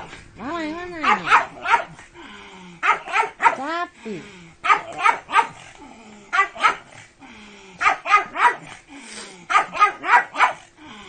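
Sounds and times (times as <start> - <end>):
dog barking in high yaps: 1.0 - 2.0, 2.8 - 3.6, 4.6 - 5.6, 6.4 - 6.8, 7.8 - 8.6, 9.5 - 10.6.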